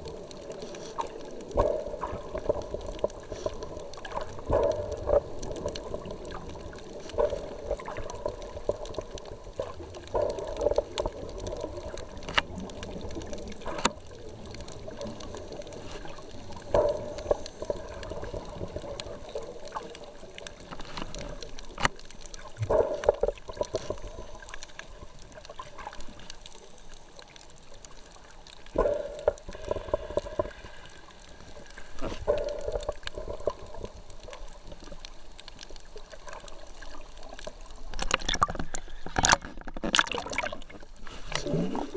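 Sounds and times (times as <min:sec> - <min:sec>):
underwater bubbles gurgling: 0:00.0 - 0:41.9
low rush of water: 0:27.2 - 0:41.9.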